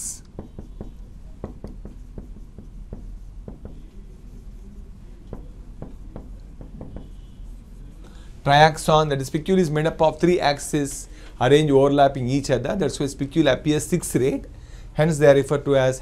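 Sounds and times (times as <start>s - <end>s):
marker writing on whiteboard: 0.0s - 8.2s.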